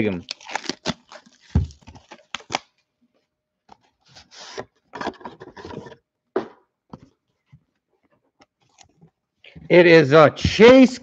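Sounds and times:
cardboard and plastic rubbing: 0:00.5 - 0:02.6, 0:03.7 - 0:06.0.

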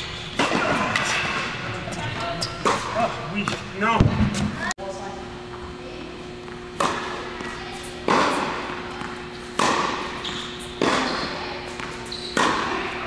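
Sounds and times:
tennis balls struck by rackets: 0:00.4 - 0:01.6, 0:06.5 - 0:13.0.

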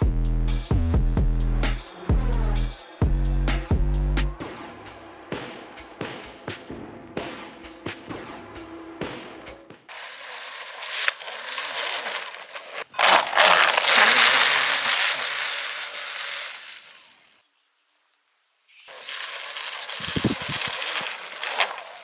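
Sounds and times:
toy snowmobile track crunching snow: 0:09.9 - 0:22.0.

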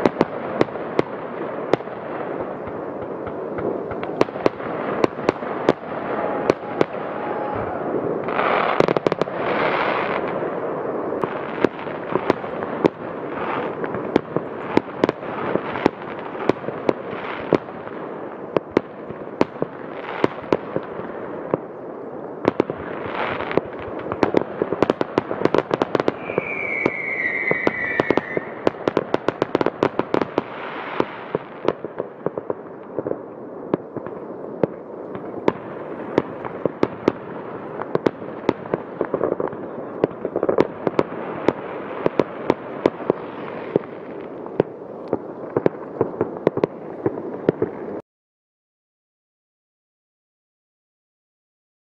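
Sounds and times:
firework bangs: 0:00.0 - 0:48.0
firework crackle: 0:00.0 - 0:48.0
falling firework whistle: 0:05.6 - 0:10.2, 0:25.9 - 0:29.0.

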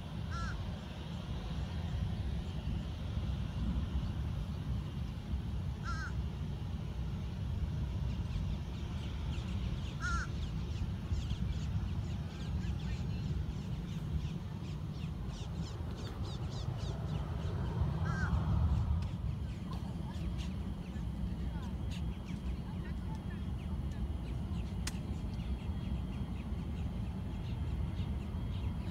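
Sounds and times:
crow cawing: 0:00.3 - 0:00.6, 0:05.8 - 0:06.2, 0:10.0 - 0:10.4, 0:18.0 - 0:18.4.

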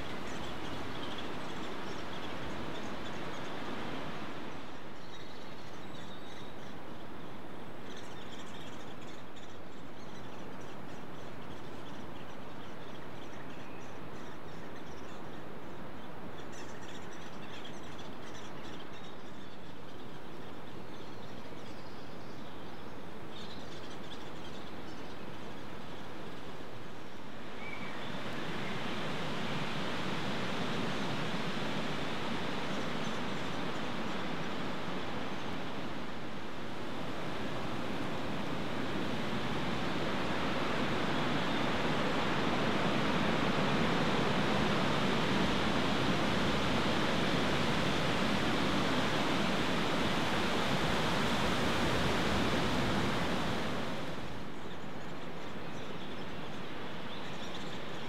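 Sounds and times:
rushing woodland background noise: 0:00.0 - 0:58.0.

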